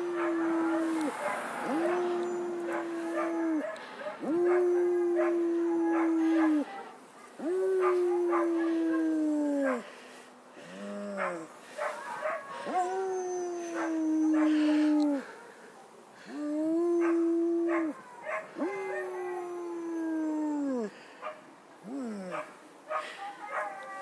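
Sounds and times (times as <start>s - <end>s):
dog howling: 0.0s - 9.8s, 10.9s - 15.3s, 16.6s - 20.9s.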